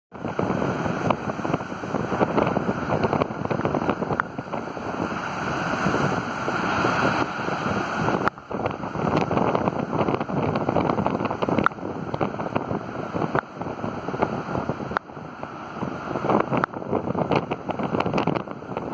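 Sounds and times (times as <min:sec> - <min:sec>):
wind buffeting microphone: 0:00.1 - 0:18.9
storm surf crashing on rocks: 0:00.2 - 0:18.9.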